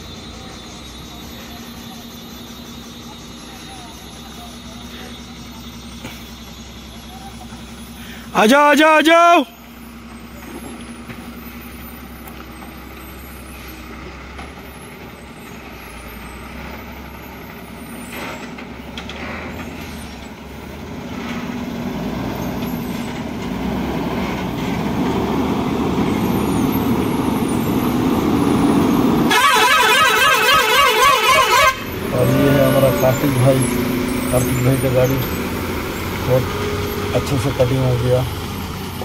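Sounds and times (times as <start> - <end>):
truck diesel engine running: 0.0 - 39.0
warbling truck horn: 29.2 - 35.2.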